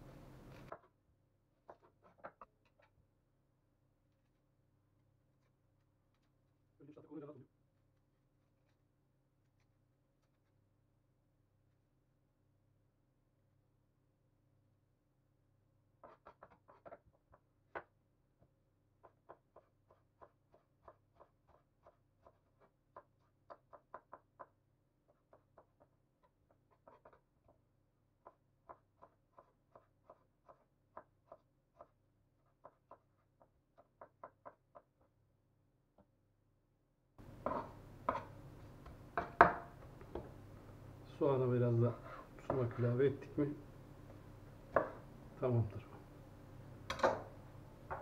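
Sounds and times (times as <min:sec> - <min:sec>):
knife tapping cutting board: 0:37.2 - 0:40.4, 0:42.0 - 0:42.8, 0:44.0 - 0:45.1.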